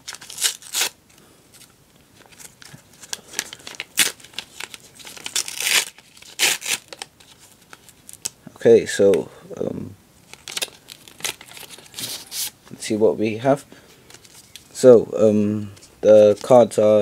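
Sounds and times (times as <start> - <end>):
paper envelope tearing: 0.0 - 1.0, 3.1 - 7.4, 10.3 - 12.6.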